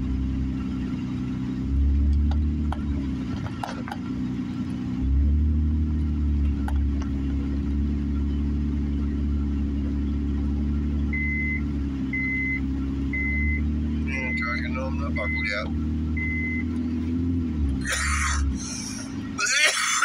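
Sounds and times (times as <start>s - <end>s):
car engine and road noise: 0.0s - 20.0s
short high beeps: 13.2s - 16.7s.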